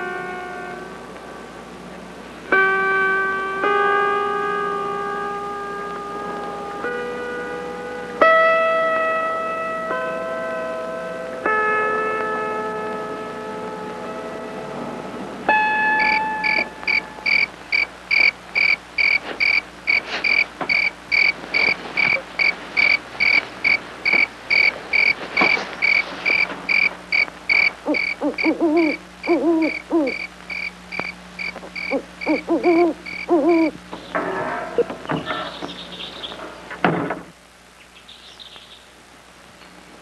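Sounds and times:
insect chirping steadily: 0:15.9 - 0:33.8
wavering hoot-like animal calls: 0:16.0 - 0:33.8.

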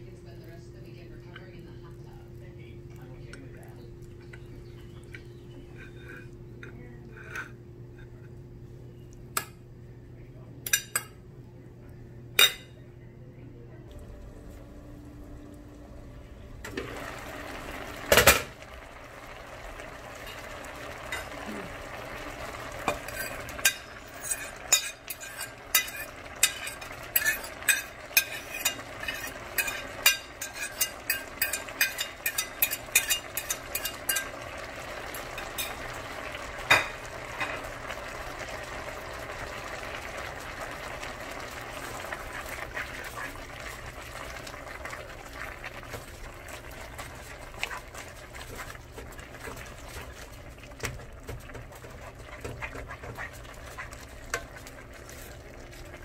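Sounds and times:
greens simmering with a hiss: 0:00.0 - 0:12.3, 0:13.8 - 0:56.0
utensil clicking against pan: 0:22.9 - 0:34.4.

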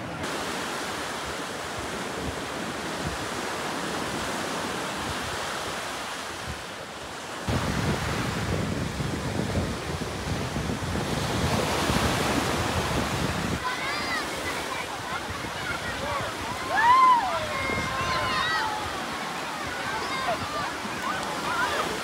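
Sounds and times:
surf breaking on beach: 0:00.0 - 0:22.0
wind rumbling on microphone: 0:07.4 - 0:13.8, 0:14.7 - 0:22.0.

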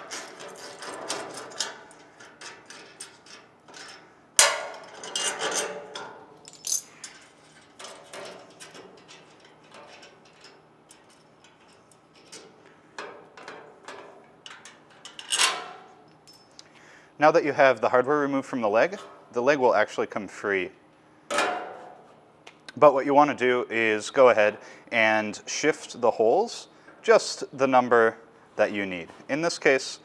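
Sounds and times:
metal hardware clinks and knocks: 0:00.0 - 0:16.6.

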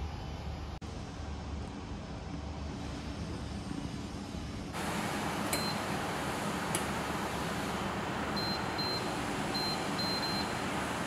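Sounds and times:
steady hiss: 0:02.7 - 0:11.0
control panel beeps: 0:05.5 - 0:05.8, 0:08.4 - 0:10.6.

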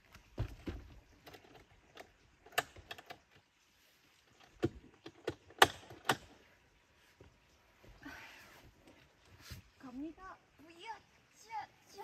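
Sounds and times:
sharp clicks and knocks: 0:00.4 - 0:03.5, 0:04.4 - 0:06.4.

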